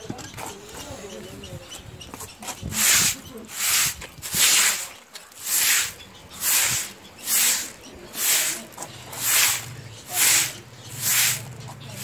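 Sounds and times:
broom swishing over wet floor: 2.7s - 12.0s.

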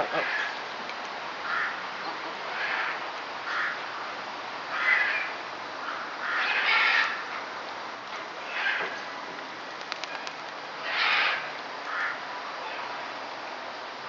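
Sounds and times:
bird calling roughly: 8.4s - 9.0s.

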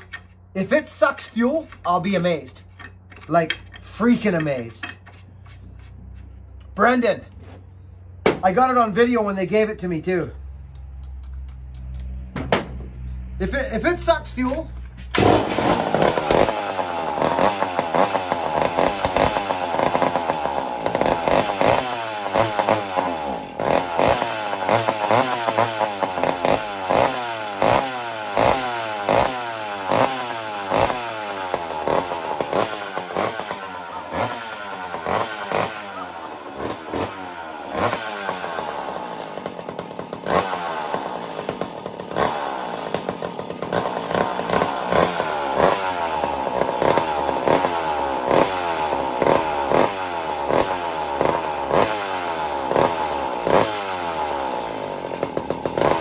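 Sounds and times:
chainsaw engine running unevenly: 14.4s - 56.0s.

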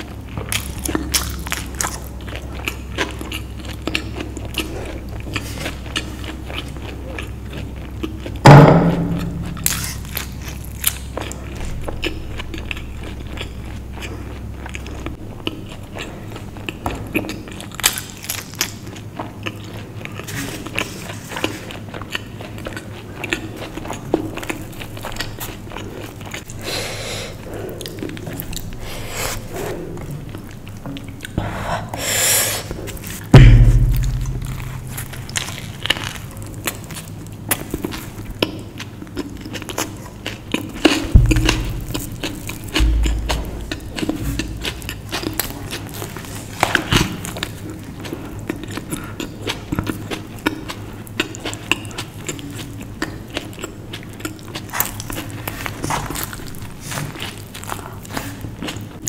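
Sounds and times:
person chewing: 0.0s - 31.4s, 32.6s - 59.0s
loud thump: 33.4s - 35.5s, 41.2s - 44.9s.

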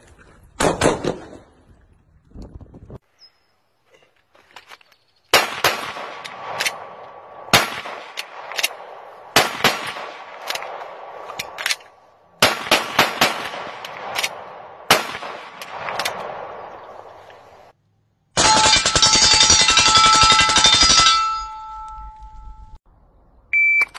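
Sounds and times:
pistol shots: 0.6s - 1.3s, 5.3s - 11.8s, 12.4s - 17.1s
rapid rifle fire: 5.4s - 6.6s, 8.8s - 10.4s, 12.4s - 16.6s, 18.4s - 21.1s
faint ringing tone: 21.0s - 22.8s.

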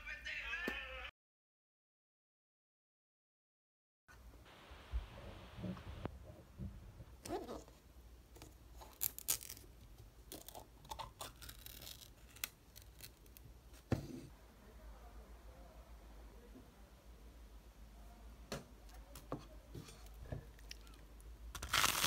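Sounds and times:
foil lid crinkling and tearing: 8.8s - 9.7s, 10.3s - 13.4s, 21.6s - 22.0s.

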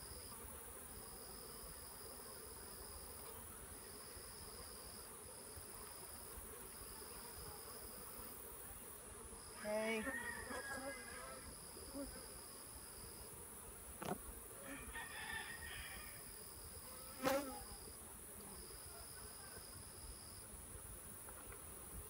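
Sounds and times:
bee buzzing past: 0.0s - 22.0s
honeybees buzzing: 0.0s - 22.0s
high-pitched insect whine: 14.0s - 18.0s.

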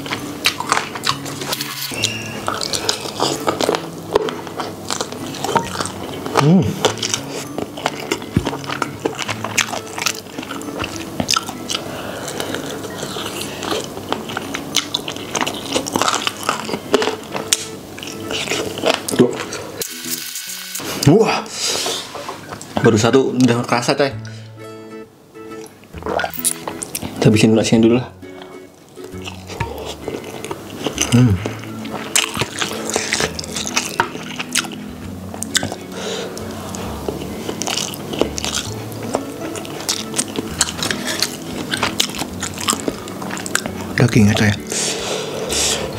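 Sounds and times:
fingers squishing sticky food: 0.0s - 19.6s, 28.2s - 44.7s
wet chewing: 0.0s - 19.8s, 25.5s - 27.3s, 28.1s - 45.9s.

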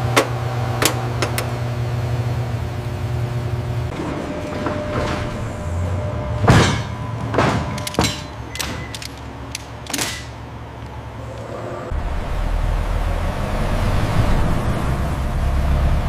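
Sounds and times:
steady low hum: 0.0s - 16.0s
metal clanks and clicks: 0.1s - 1.6s, 6.4s - 10.9s
metal scraping: 3.9s - 10.6s
deep rumble: 10.7s - 16.0s.

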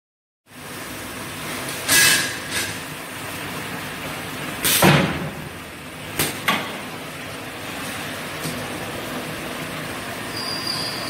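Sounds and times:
pneumatic air bursts: 1.8s - 2.9s, 4.6s - 5.1s.

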